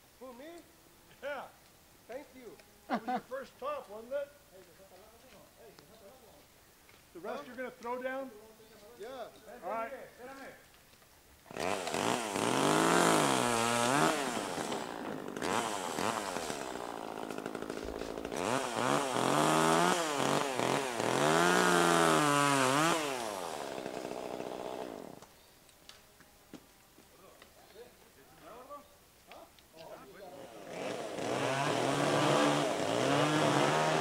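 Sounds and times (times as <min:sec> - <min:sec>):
chainsaw cutting limbs: 0:11.4 - 0:25.3, 0:30.3 - 0:34.0.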